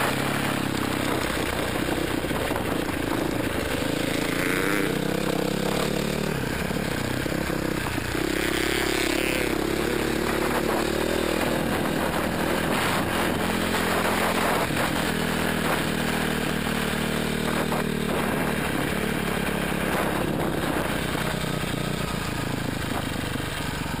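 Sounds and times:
motorcycle engine at speed: 0.0 - 24.0
wind noise over microphone: 0.0 - 24.0.

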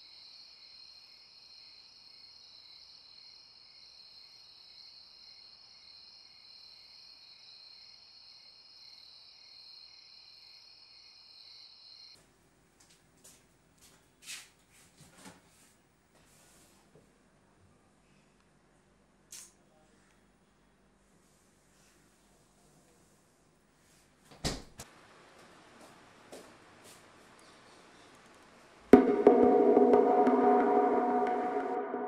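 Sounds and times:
crickets chirring: 0.0 - 12.2.

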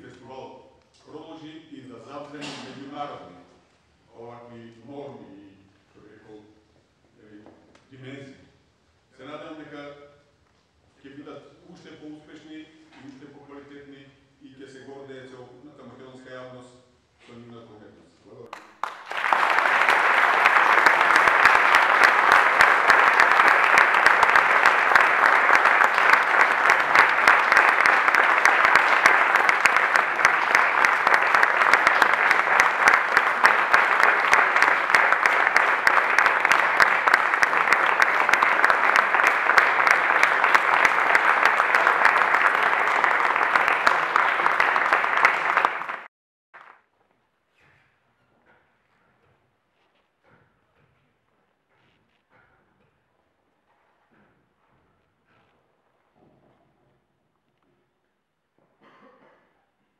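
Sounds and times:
audience applauding: 18.5 - 46.8.

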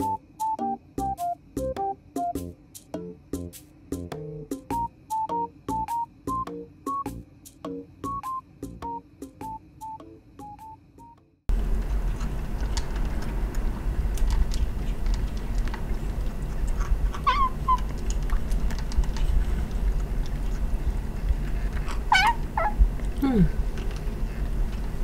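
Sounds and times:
kitten mewing: 17.1 - 18.0, 21.9 - 23.6.

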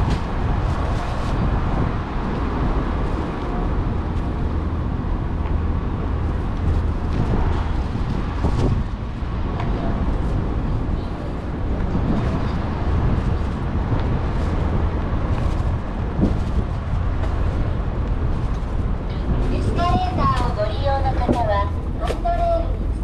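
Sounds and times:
low street rumble: 0.0 - 23.0.

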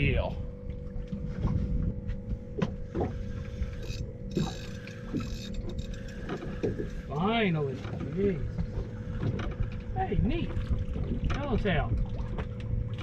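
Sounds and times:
wind and water rumble: 0.0 - 13.0
fishing reel clicking: 3.7 - 6.4.

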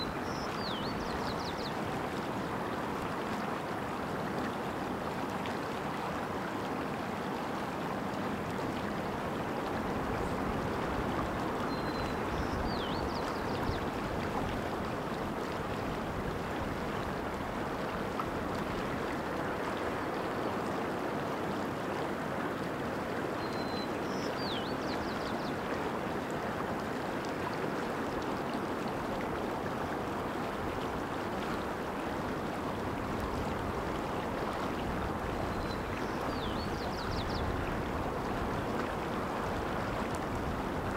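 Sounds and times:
songbird singing: 0.0 - 1.8, 11.7 - 13.8, 23.4 - 25.6, 35.4 - 37.5
creek flowing over rocks: 0.0 - 40.9.

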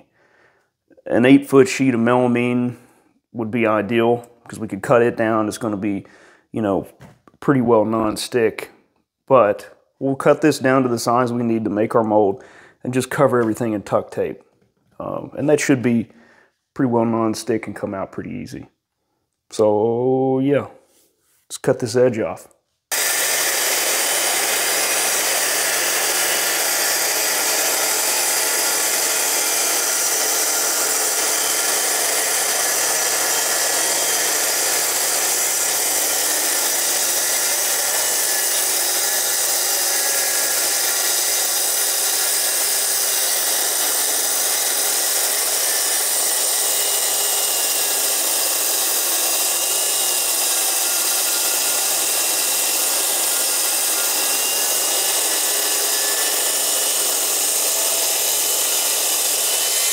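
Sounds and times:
circular saw cutting wood: 22.9 - 59.9.

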